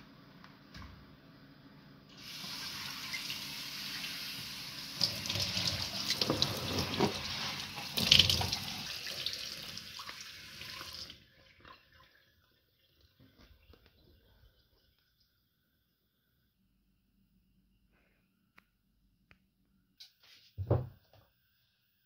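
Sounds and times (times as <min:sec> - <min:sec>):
faucet running into sink: 0:02.2 - 0:13.4.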